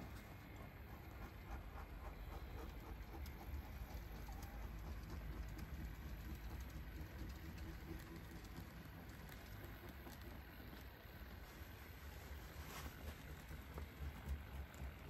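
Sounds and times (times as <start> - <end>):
wheels ticking on track: 0.0 - 11.8
model train motor hum: 0.0 - 15.0.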